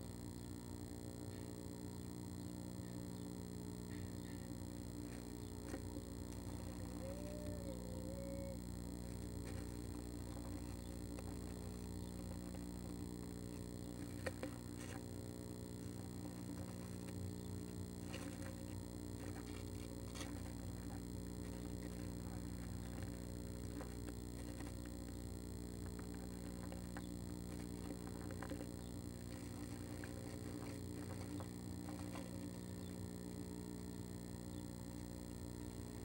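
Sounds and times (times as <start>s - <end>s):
low electrical hum: 0.0s - 36.0s
bird scratching on wood shavings: 25.9s - 32.6s.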